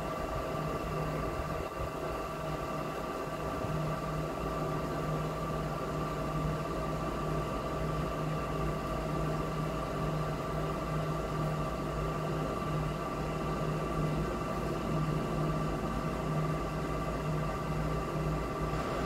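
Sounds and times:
mechanical hum: 0.0 - 19.0.

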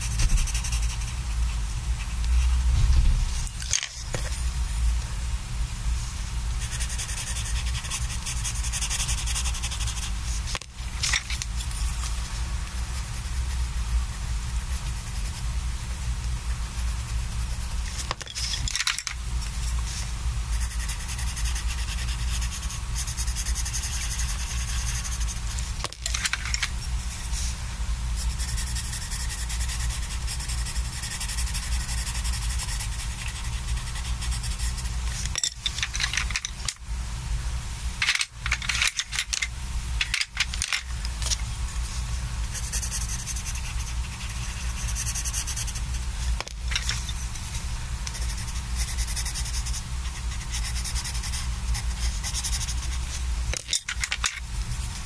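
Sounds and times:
colored pencils scratching paper: 0.0 - 2.2, 6.6 - 15.4, 16.7 - 25.4, 28.2 - 35.3, 41.8 - 46.0, 46.7 - 53.2.

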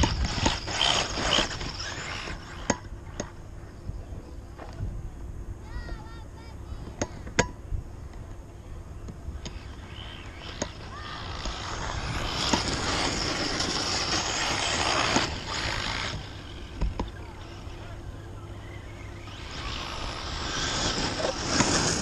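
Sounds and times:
tyres hissing on gravel: 19.6 - 22.0.

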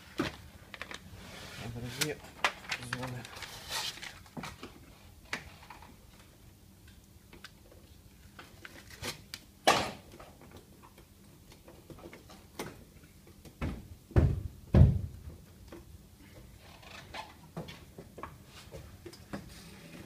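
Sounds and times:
small clicks and rustles: 2.0 - 9.0.

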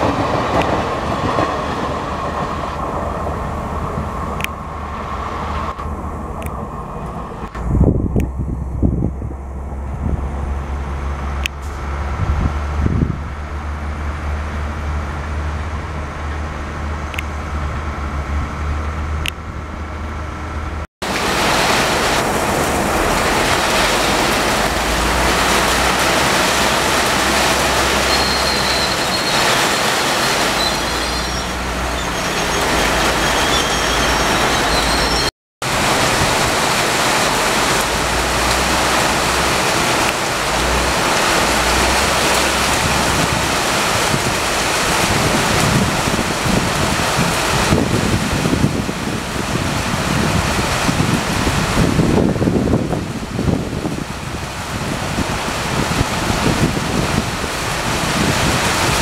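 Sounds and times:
heavy rain hissing: 0.0 - 8.0, 21.0 - 59.0
train rumbling past: 0.0 - 59.0
high squeals: 27.2 - 35.3.

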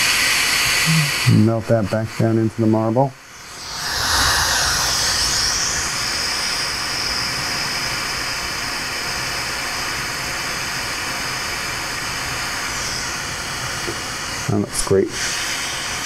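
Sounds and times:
torch flame hissing: 3.3 - 8.4.

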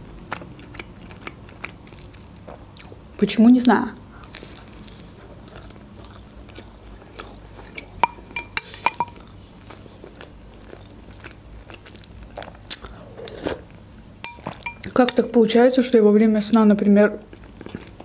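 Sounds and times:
chewing pastry with crunching: 0.0 - 13.6, 17.2 - 18.0
metal spoon clinking ceramic bowl: 8.0 - 9.2, 14.2 - 15.2.

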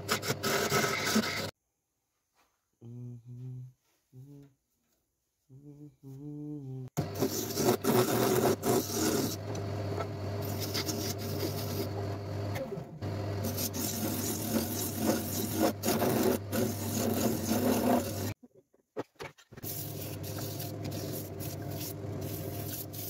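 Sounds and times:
tool scraping on wood: 7.0 - 9.5, 13.4 - 18.4.

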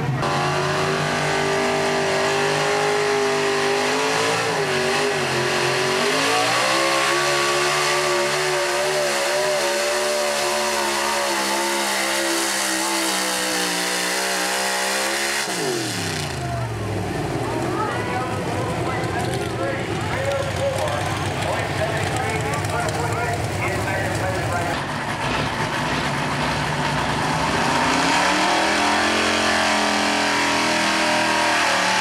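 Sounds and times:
pickup engine revving hard: 0.0 - 17.0, 25.2 - 32.0.

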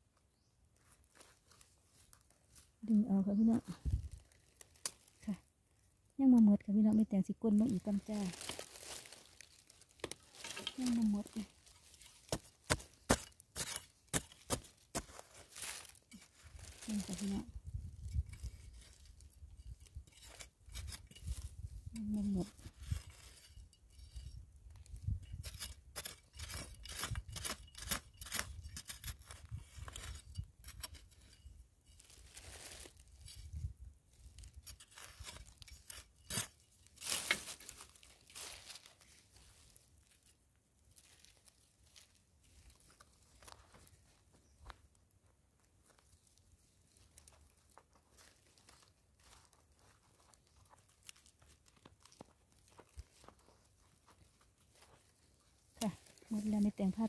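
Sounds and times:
scratching and rustling of soil: 0.4 - 57.0
spade scraping into soil: 10.0 - 10.9, 11.6 - 16.4, 18.0 - 21.6, 22.4 - 24.4, 25.2 - 33.6, 34.5 - 38.4.

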